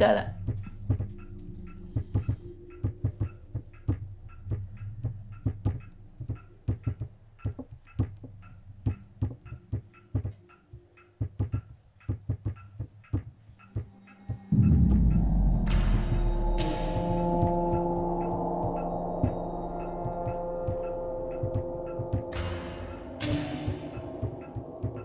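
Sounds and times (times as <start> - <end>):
irregular knocking and clicking: 0.3 - 14.6, 17.4 - 25.0
low steady hum: 14.5 - 23.3.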